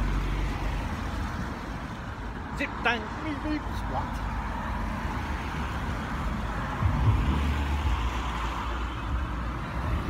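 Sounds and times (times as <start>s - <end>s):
road traffic passing: 0.0s - 10.0s
vehicle rumbling by: 4.4s - 10.0s.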